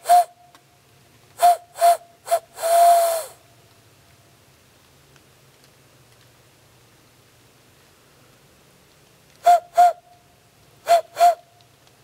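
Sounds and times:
hand-blown owl hoots: 0.0 - 0.4, 1.4 - 3.4, 9.4 - 10.1, 10.8 - 11.6.

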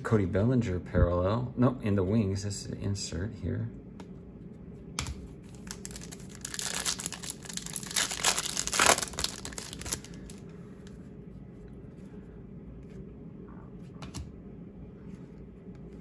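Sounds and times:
wrapper tearing and crinkling: 5.5 - 10.4.

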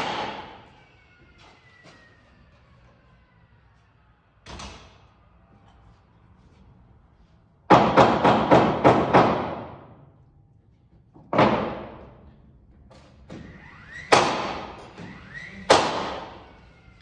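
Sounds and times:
nail gun shots into wood: 0.0 - 0.6, 14.1 - 14.9, 15.7 - 16.4.

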